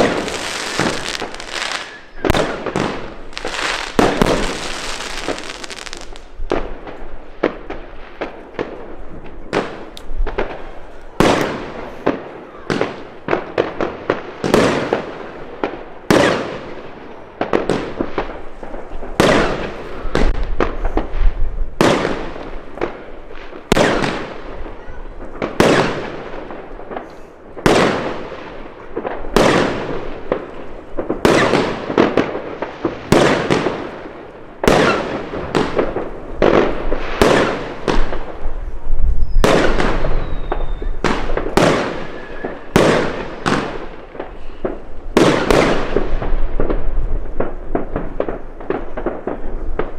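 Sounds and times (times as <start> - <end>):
firework shots banging: 0.0 - 8.8, 25.3 - 38.5, 39.2 - 49.9.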